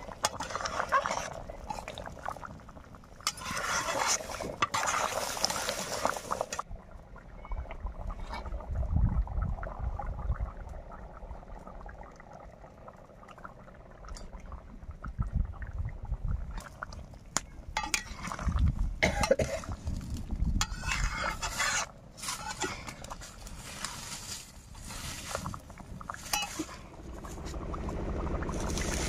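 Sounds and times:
metal spatula scraping metal pan: 3.3s - 5.2s, 20.6s - 23.0s, 26.3s - 26.8s
low rumble: 25.7s - 29.0s.

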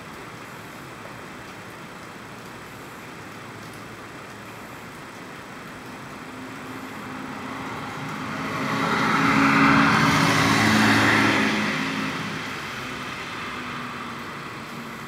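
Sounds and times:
car driving past: 6.8s - 12.6s.

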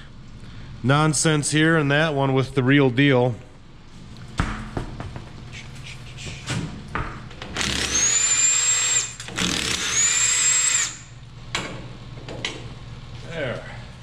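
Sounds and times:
power tool motor whine: 7.6s - 11.2s.

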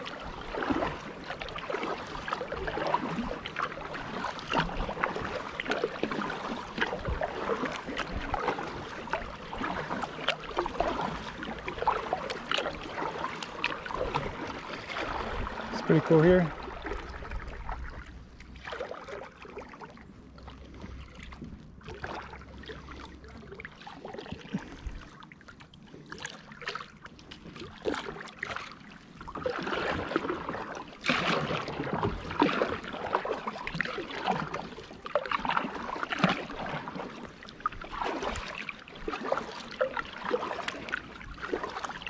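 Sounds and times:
kayak paddle splashing: 0.0s - 42.0s
water dripping off paddle: 0.1s - 19.8s, 29.4s - 42.0s.

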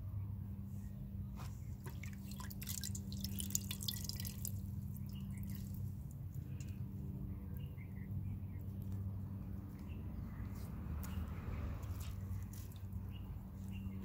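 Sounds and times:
drops falling into a pot: 1.9s - 4.6s
liquid splashing in a metal pot: 1.9s - 5.6s.

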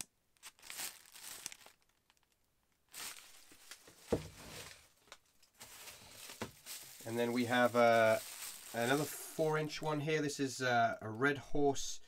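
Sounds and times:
plastic wrap and paper rustling: 0.4s - 10.0s.

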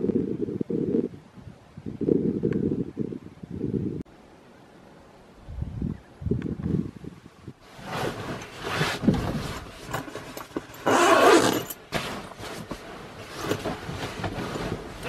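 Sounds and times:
bedding fabric rustling: 7.6s - 15.0s.

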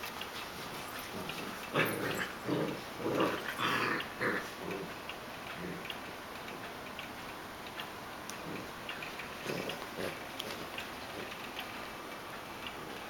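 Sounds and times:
puppies play-growling: 0.0s - 7.1s, 7.8s - 13.0s.

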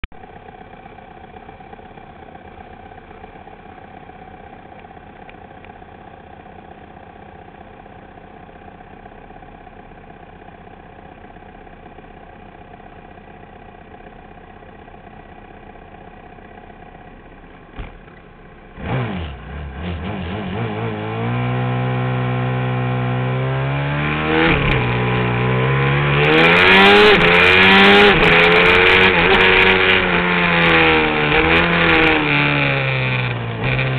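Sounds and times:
motorcycle engines idling: 0.2s - 18.8s, 28.1s - 33.9s
motorcycle engine revving and accelerating: 17.8s - 33.9s.

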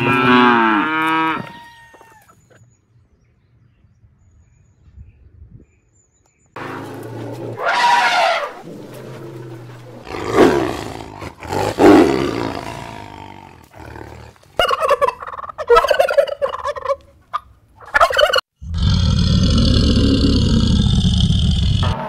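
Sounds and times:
loud falling animal calls: 6.6s - 13.0s.

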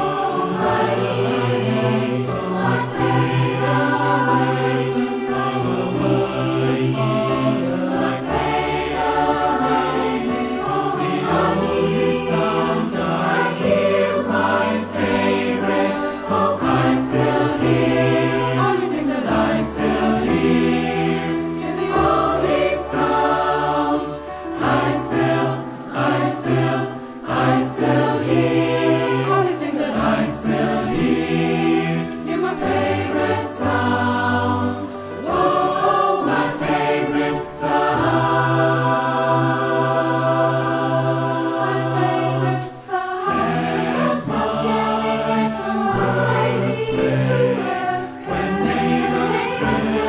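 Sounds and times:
mixed choir singing: 0.0s - 50.0s
piano accompaniment: 0.0s - 50.0s.

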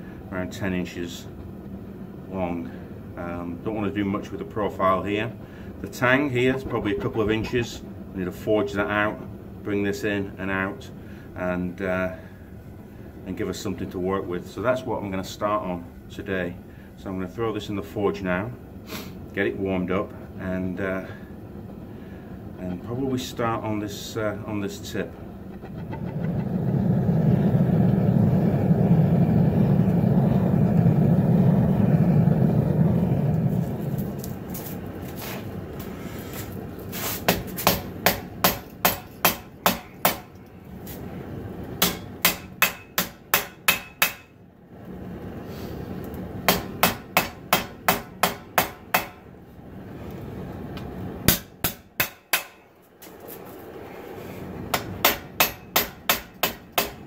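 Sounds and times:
forge roaring: 20.1s - 36.8s, 39.6s - 42.4s, 44.6s - 46.9s
hammer striking hot steel on anvil: 37.2s - 40.4s, 41.8s - 44.3s, 46.5s - 49.3s, 51.3s - 52.7s, 54.7s - 57.0s.

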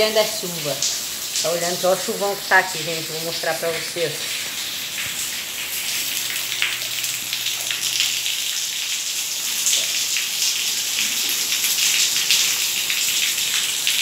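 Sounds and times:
heavy rain on tiles: 0.0s - 14.0s.

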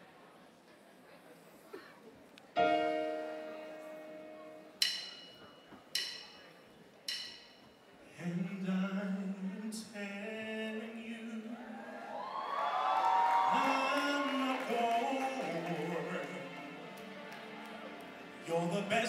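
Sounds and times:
struck chords ringing: 2.6s - 7.8s.

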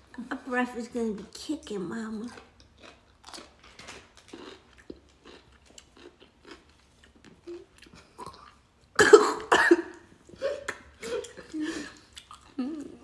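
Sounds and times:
wet chewing crunches: 2.3s - 8.6s, 12.0s - 13.0s
loud cough: 9.0s - 11.2s.

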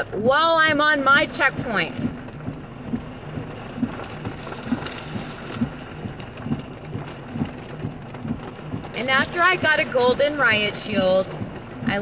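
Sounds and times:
rain on a car roof: 0.0s - 12.0s.

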